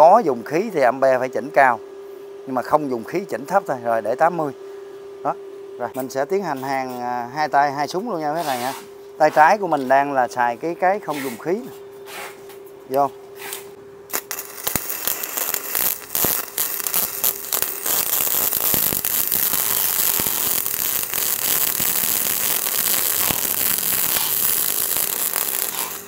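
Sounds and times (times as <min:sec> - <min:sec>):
welding arcs crackling: 0:05.8 - 0:26.0.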